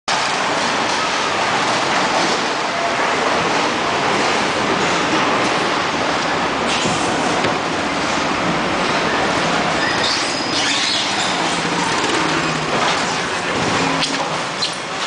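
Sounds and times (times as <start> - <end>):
din of busy market crowd: 0.1 - 15.0
motorized carts running past: 7.9 - 15.0.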